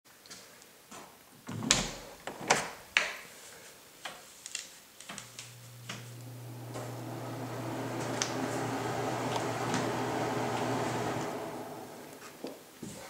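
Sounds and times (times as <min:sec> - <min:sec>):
steady low hum: 0:05.3 - 0:12.5.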